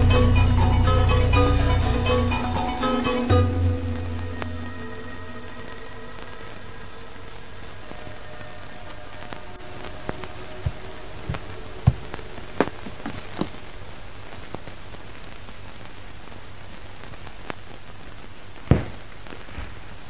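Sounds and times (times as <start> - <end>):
crackling hiss with pops: 3.9 - 12.6, 13.5 - 20.0
low thumps: 10.7 - 13.6.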